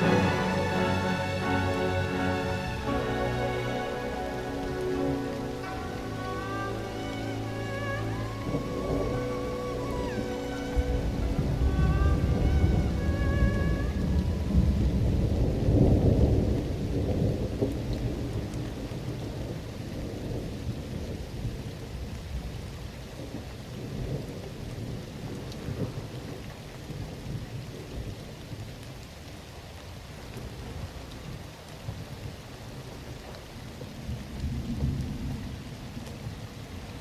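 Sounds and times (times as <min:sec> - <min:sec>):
thunder rolling: 0:00.0 - 0:21.8
steady rain: 0:00.0 - 0:37.0.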